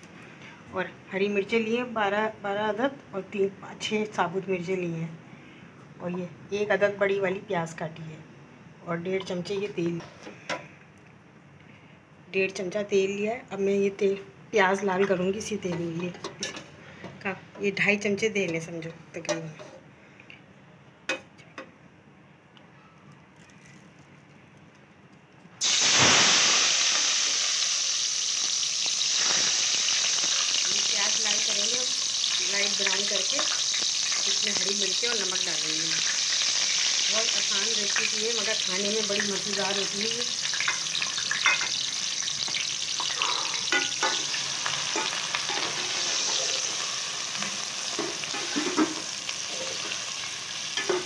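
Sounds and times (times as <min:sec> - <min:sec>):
onions sizzling in hot oil: 0:25.6 - 0:51.0.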